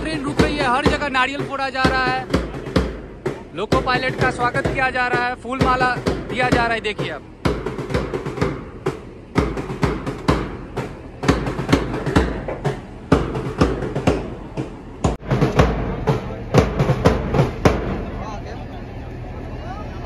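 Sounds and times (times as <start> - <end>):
large drum beaten: 0.0 - 18.4.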